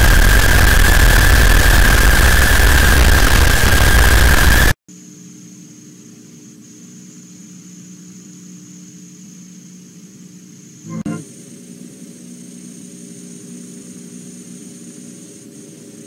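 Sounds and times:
harsh distorted noise with whistle: 0:00.0 - 0:04.8
videotape hum and whine: 0:00.0 - 0:16.0.

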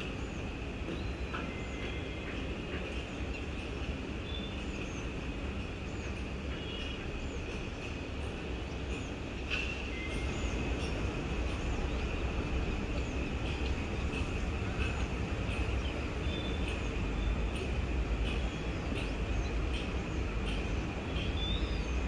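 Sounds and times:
distant city traffic rumble: 0:00.0 - 0:22.0.

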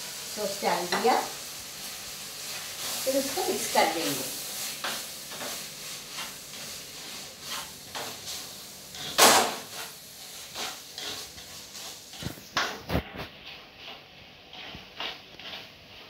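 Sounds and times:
faint sizzle: 0:00.0 - 0:16.0
ladle scraping a pan: 0:04.8 - 0:16.0.

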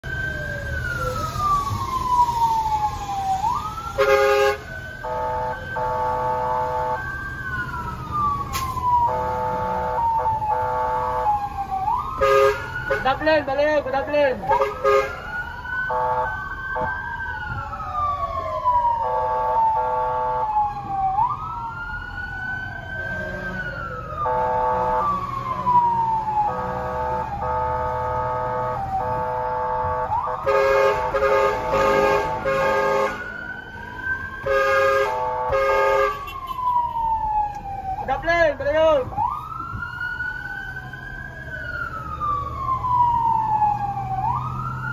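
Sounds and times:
city traffic: 0:00.0 - 0:44.9
fire truck siren wailing: 0:00.0 - 0:44.9
horn blasts: 0:04.0 - 0:07.0, 0:12.2 - 0:13.2, 0:14.5 - 0:15.2, 0:26.5 - 0:33.3, 0:34.4 - 0:36.8.

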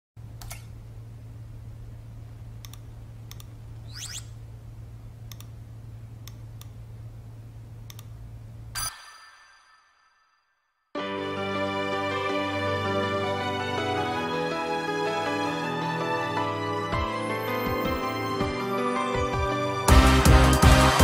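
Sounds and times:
steady low hum: 0:00.2 - 0:08.8.

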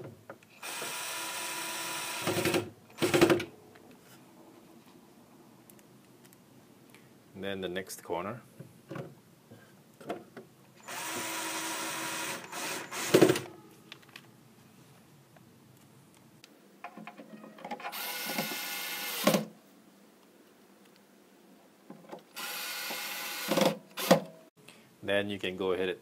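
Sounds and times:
cordless screwdriver driving screws: 0:17.9 - 0:19.4.

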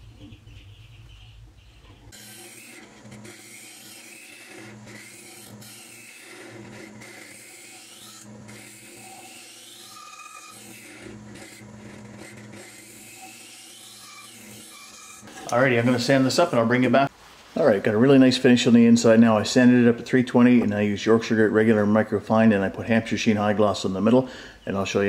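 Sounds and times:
lathe tool scraping wood: 0:01.8 - 0:17.1
lathe humming: 0:02.1 - 0:17.0.

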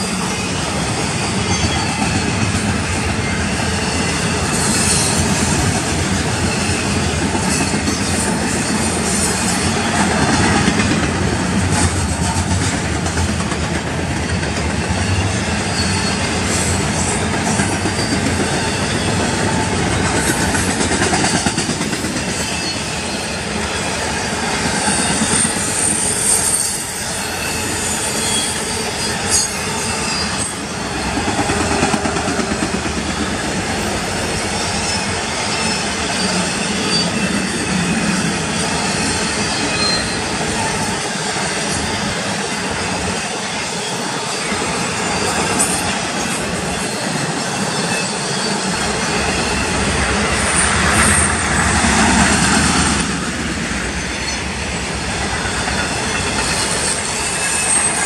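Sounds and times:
high wheel squeal: 0:00.0 - 0:05.4, 0:14.8 - 0:20.6, 0:22.2 - 0:32.0, 0:33.0 - 0:52.4, 0:53.8 - 0:58.0
train wheels rumbling on rails: 0:00.0 - 0:58.0.

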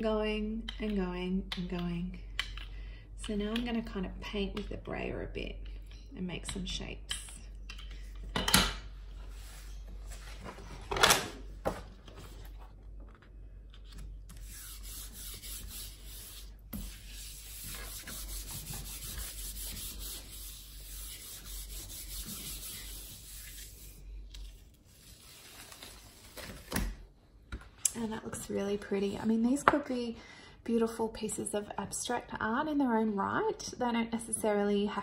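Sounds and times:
hand rubbing paper: 0:14.3 - 0:25.8.

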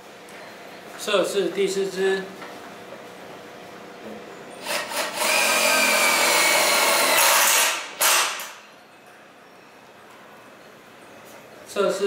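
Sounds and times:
cordless drill motor whining: 0:04.6 - 0:07.4.

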